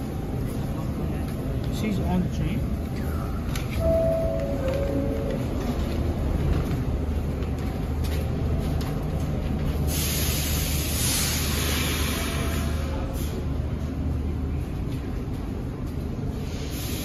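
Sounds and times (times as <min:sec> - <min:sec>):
subway train humming: 0:00.0 - 0:17.0
loud hiss: 0:09.9 - 0:12.7, 0:16.4 - 0:17.0.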